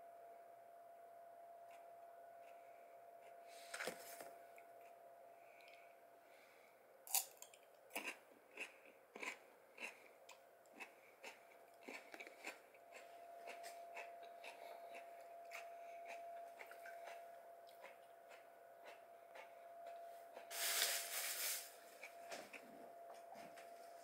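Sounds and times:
cucumber being bitten and chewed: 7.1 - 19.5.

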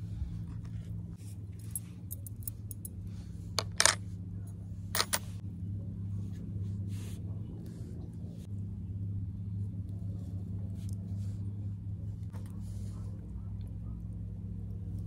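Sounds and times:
steady low hum: 0.0 - 15.0
metal objects clinking: 3.6 - 4.0, 5.0 - 5.4.

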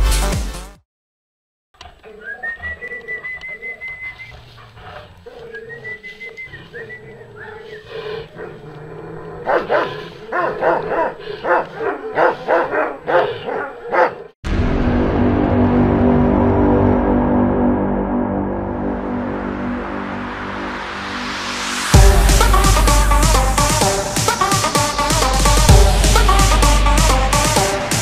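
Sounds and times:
dogs barking: 9.4 - 14.4.

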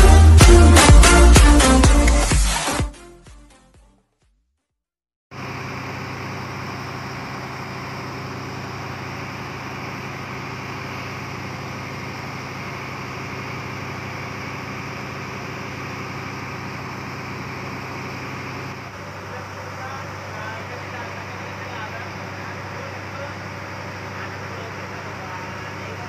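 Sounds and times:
boat engine droning: 5.3 - 26.0.

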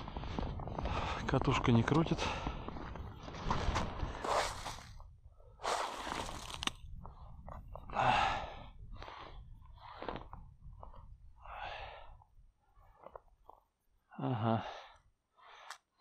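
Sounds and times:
hand crunching snow and slushy ice: 4.1 - 5.0, 5.6 - 6.7.

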